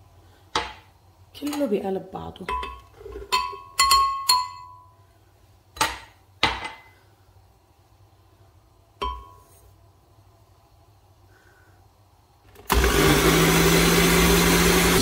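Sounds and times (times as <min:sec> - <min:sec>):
glass clinking against glass jar: 0:02.5 - 0:04.9.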